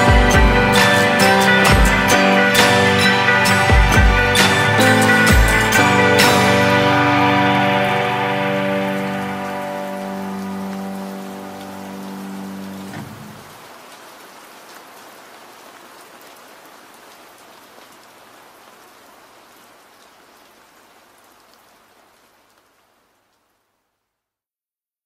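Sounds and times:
held musical chord: 0.0s - 13.5s
steady rain: 0.0s - 24.4s.

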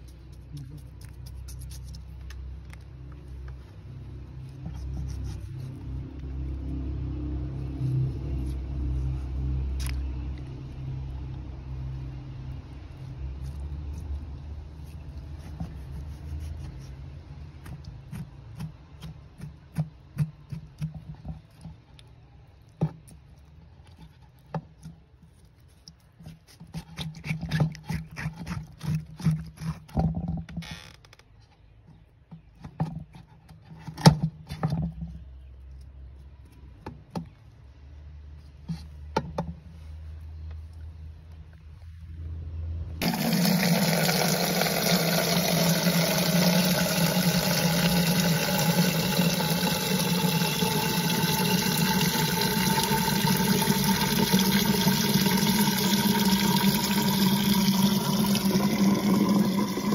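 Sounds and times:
knife scraping aloe leaf: 0.0s - 2.5s, 4.3s - 6.4s, 12.9s - 21.8s, 23.0s - 30.0s.

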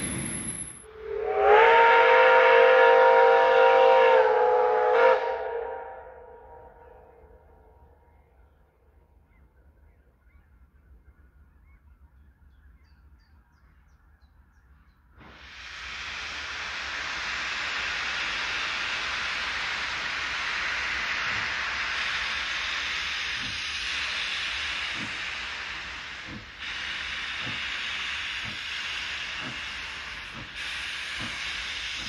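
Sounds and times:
steam locomotive venting steam: 0.0s - 6.7s, 15.2s - 32.0s.

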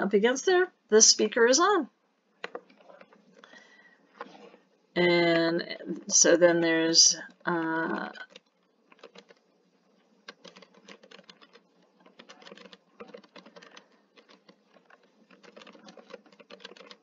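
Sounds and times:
faint keyboard typing: 2.4s - 4.5s, 7.2s - 17.0s.

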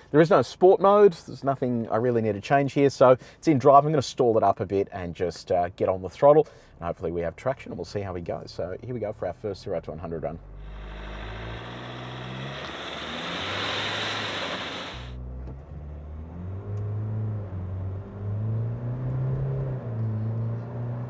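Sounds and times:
diesel engine accelerating: 10.2s - 21.0s
steady hiss: 10.6s - 15.2s.

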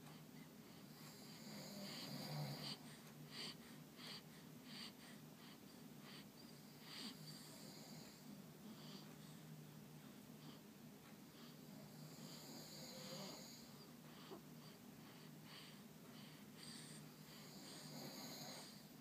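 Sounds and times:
baby soft snores: 0.8s - 9.4s, 11.3s - 18.9s
baby snuffly breathing: 13.0s - 18.9s.

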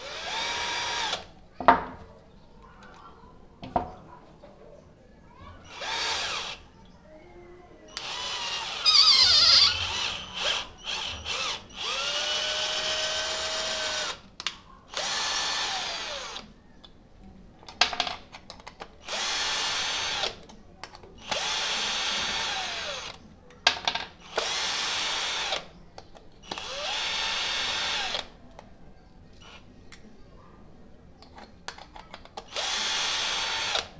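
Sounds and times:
cordless drill motor whine: 0.0s - 1.2s, 5.7s - 6.6s, 8.0s - 14.1s, 32.5s - 33.8s
drill driving screws into wood: 0.0s - 1.3s, 5.7s - 6.6s, 8.0s - 14.2s, 14.9s - 16.4s, 19.0s - 20.4s, 21.2s - 23.2s, 24.2s - 25.6s, 26.5s - 28.3s, 32.5s - 33.9s.

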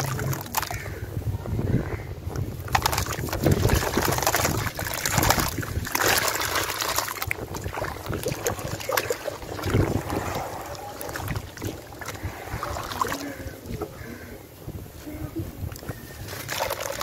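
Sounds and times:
gritty crumbs falling into water: 0.0s - 0.9s, 2.3s - 12.2s
hands squelching through wet slurry: 0.0s - 1.0s, 2.3s - 14.1s, 15.6s - 17.0s.

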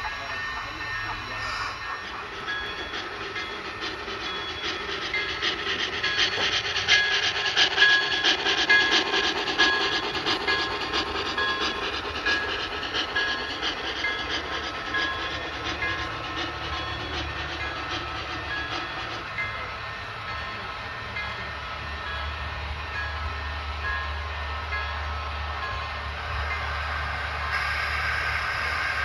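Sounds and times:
model train wheels clicking over track: 1.1s - 21.4s.

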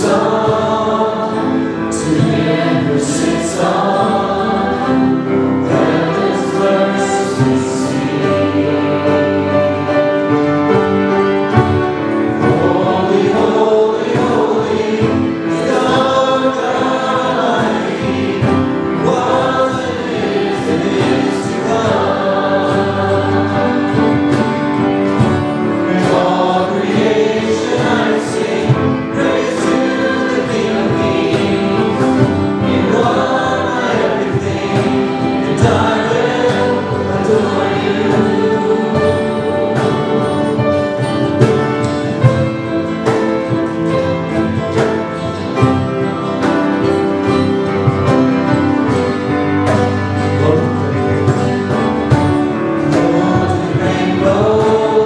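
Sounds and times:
women singing together: 0.0s - 9.5s, 12.6s - 24.5s, 25.9s - 40.6s
acoustic and electric guitars: 0.0s - 55.0s.

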